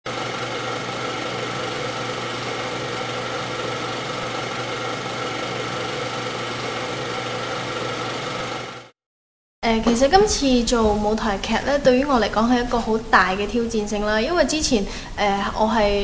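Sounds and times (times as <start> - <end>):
machine whirring hum: 0.1 - 8.9.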